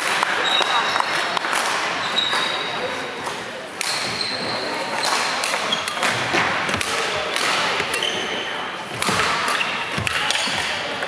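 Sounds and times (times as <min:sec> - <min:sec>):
echoing hall background: 0:00.0 - 0:11.0
shoe squeaks: 0:00.4 - 0:01.2, 0:02.0 - 0:03.2, 0:03.9 - 0:06.0, 0:07.9 - 0:08.6
racket hitting shuttlecock: 0:05.0 - 0:08.2, 0:08.9 - 0:10.8.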